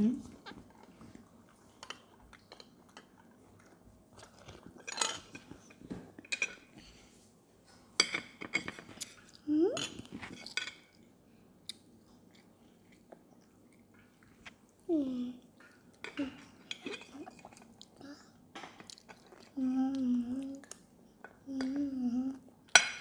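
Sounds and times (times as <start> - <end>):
chewing: 0.3 - 6.6, 11.6 - 14.9, 15.6 - 18.0, 18.6 - 21.4.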